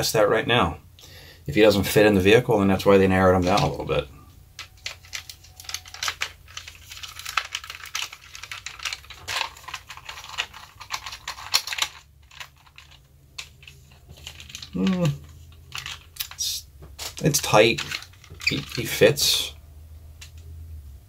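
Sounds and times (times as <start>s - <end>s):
plastic toy clicks and rattles: 4.6s - 16.4s, 17.0s - 19.0s.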